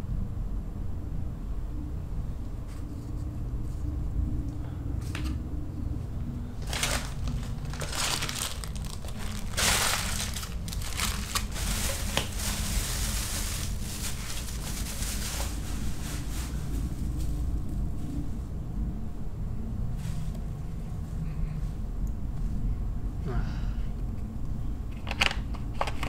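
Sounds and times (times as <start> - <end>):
low hum: 0.0 - 25.7
plastic wrappers crinkling: 6.6 - 17.5.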